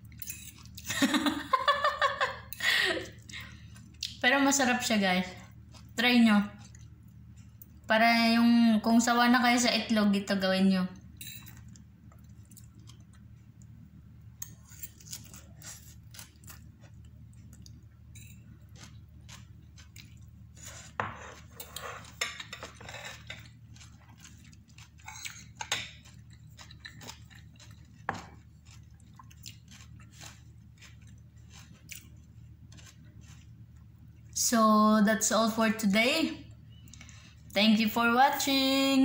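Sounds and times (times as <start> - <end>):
steady low hum: 0.0 - 39.0
person chewing: 3.1 - 4.2, 5.4 - 7.8, 11.4 - 13.8, 14.4 - 22.4, 23.0 - 34.3
fork clinking on plate: 11.2 - 11.6.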